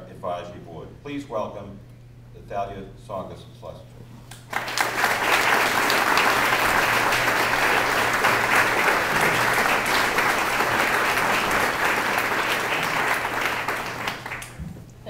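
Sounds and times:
audience applauding: 4.5 - 14.6.

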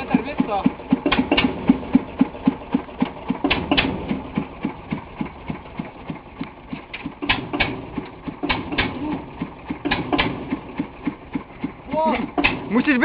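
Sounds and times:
tractor engine idling: 0.0 - 13.0
sharp clacks: 0.2 - 2.0, 3.0 - 5.3, 6.4 - 9.0, 9.7 - 12.7.

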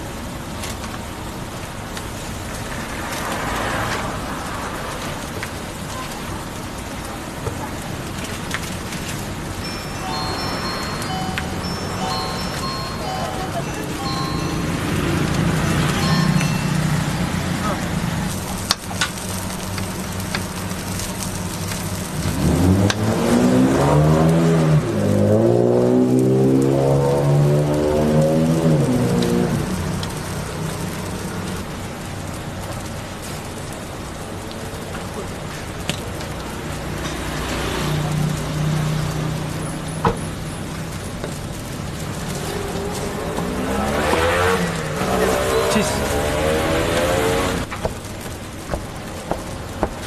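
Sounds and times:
busy street noise: 0.0 - 50.0
onion sizzling: 0.0 - 50.0
motor vehicle engine revving: 8.6 - 32.4, 36.2 - 50.0.

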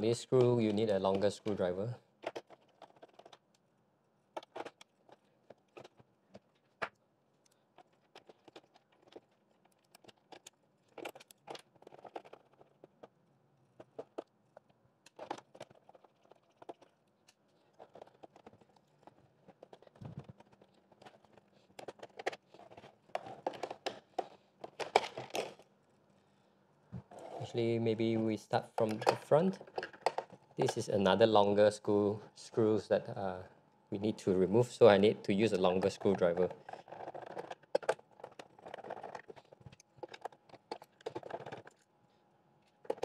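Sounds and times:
plastic casing being handled: 0.0 - 3.7, 4.3 - 25.7, 34.9 - 41.9.

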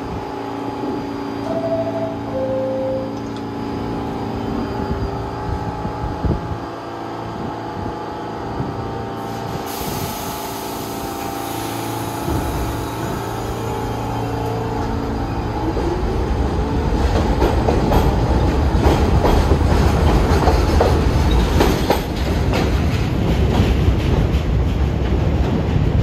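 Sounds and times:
subway train electric hum: 0.0 - 26.0
air hiss: 9.3 - 13.9.

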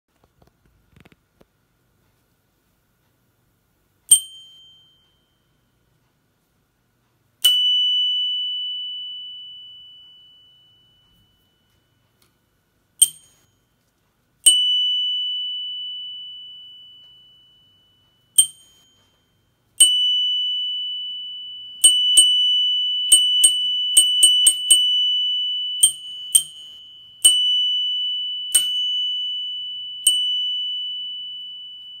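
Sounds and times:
bike bell dings: 4.1 - 5.4, 7.4 - 12.0, 13.0 - 13.7, 14.5 - 20.6, 25.8 - 32.0.

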